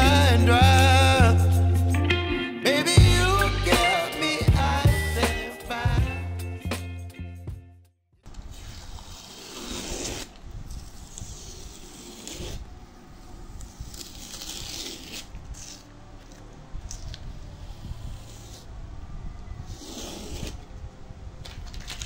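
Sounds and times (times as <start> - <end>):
background music: 0.0 - 7.9.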